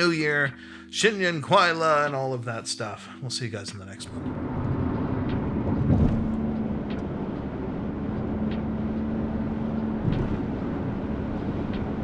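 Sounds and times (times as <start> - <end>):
car road noise: 3.7 - 12.0.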